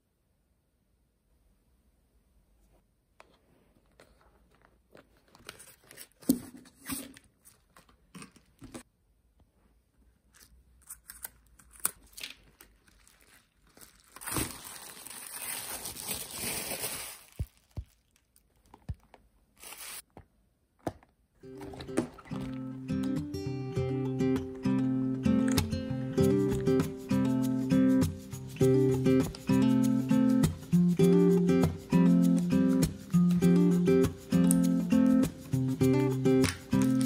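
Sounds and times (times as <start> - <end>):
silicone crinkling and rustling: 2.6 - 8.9, 10.0 - 20.2, 20.8 - 23.1.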